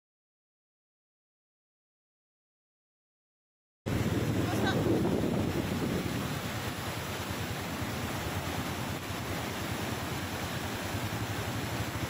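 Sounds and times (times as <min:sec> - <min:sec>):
floodwater rushing down stream: 0:03.9 - 0:12.0.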